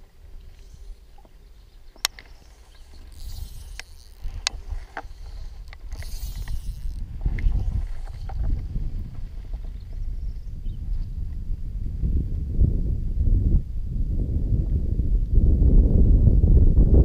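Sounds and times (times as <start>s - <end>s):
low wind rumble on microphone: 0.0s - 17.0s
sharp clicks: 2.0s - 7.6s.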